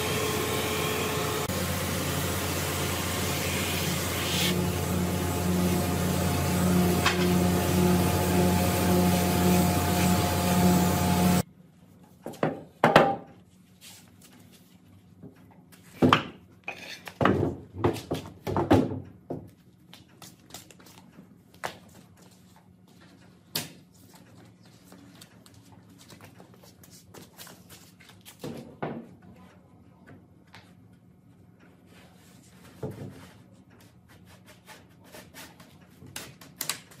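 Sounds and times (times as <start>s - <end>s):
workshop machine humming: 0.0s - 11.5s.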